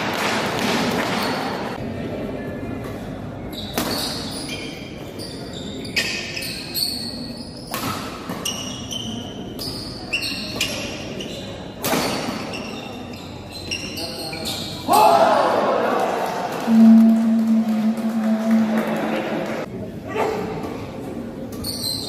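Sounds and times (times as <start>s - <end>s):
court shoes squeaking: 0.9s - 1.8s, 2.8s - 14.9s, 21.4s - 22.0s.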